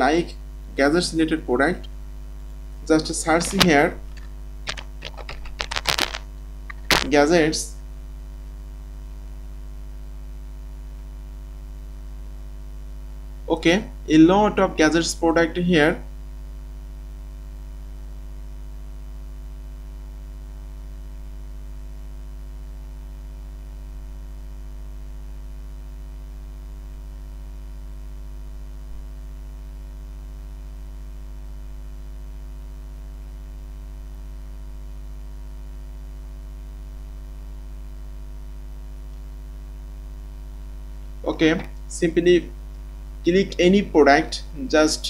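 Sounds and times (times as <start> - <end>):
electrical mains hum: 0.0 - 45.0.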